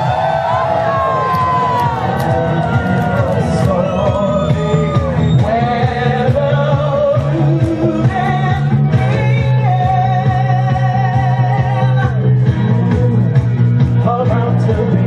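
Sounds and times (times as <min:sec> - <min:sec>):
disco backing music: 0:00.0 - 0:15.0
woman singing into microphone: 0:05.4 - 0:13.0, 0:14.0 - 0:15.0.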